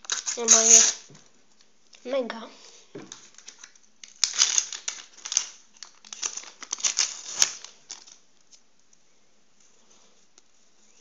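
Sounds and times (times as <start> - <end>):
sticker wrapper crinkling: 0.0 - 1.0, 3.1 - 8.2.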